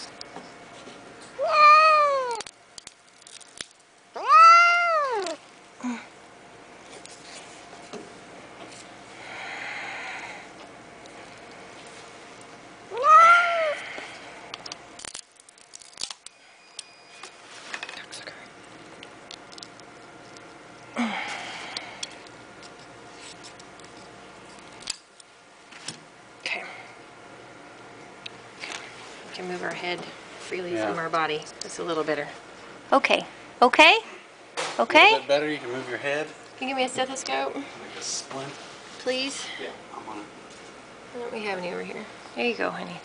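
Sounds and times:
cat meowing in pain: 1.4s - 2.5s, 4.2s - 5.4s, 12.9s - 14.0s.

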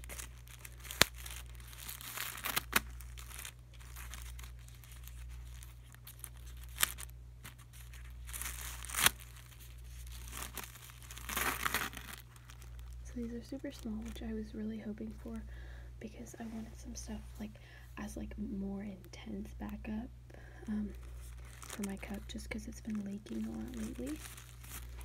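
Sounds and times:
wrapper sharp snaps: 0.0s - 13.0s
plastic wrapper crinkling and tearing: 0.0s - 14.3s, 20.8s - 25.0s.

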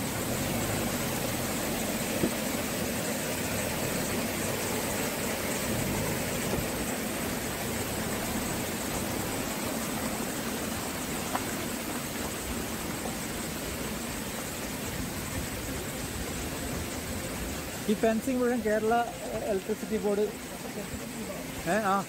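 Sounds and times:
car engine running: 0.0s - 22.0s
steady rush of noise: 0.0s - 22.0s.

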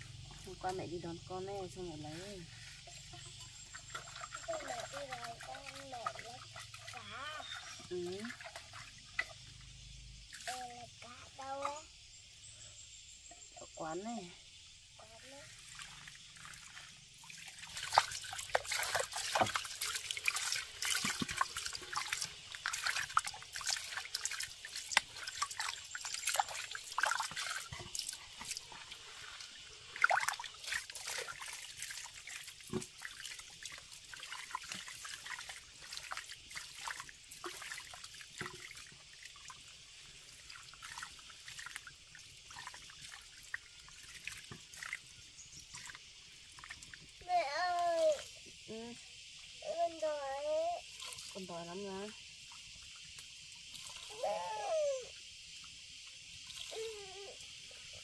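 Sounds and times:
hands scrubbing in water: 0.3s - 9.3s, 15.8s - 38.7s.

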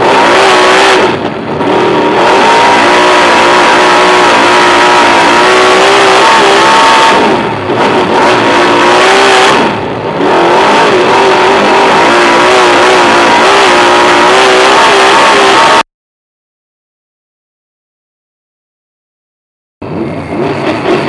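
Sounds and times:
race car engine running hard: 0.0s - 15.8s, 19.8s - 21.0s.

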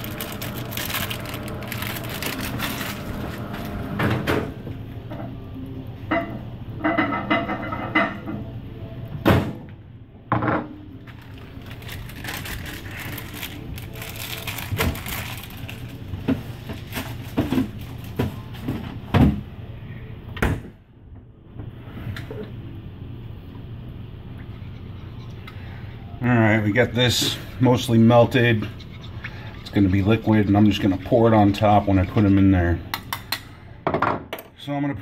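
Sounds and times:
steady low hum: 0.0s - 33.9s
knocks and clatter of objects: 16.2s - 19.4s.

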